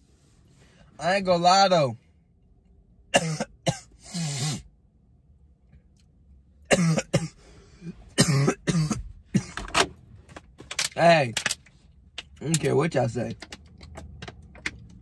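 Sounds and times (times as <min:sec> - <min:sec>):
man coughing: 0:03.1 - 0:04.6, 0:06.7 - 0:09.7.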